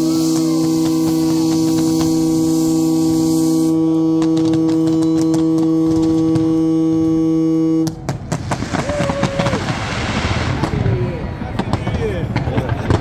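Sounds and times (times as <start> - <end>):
faint fireworks pops: 0.0 - 2.6, 4.0 - 7.2, 7.8 - 13.0
boat horns held chord: 0.0 - 8.1.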